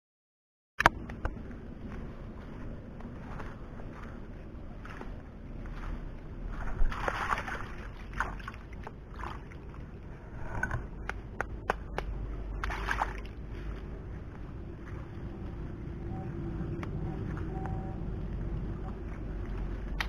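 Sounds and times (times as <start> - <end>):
hands splashing in water: 6.8 - 9.6, 12.6 - 13.4.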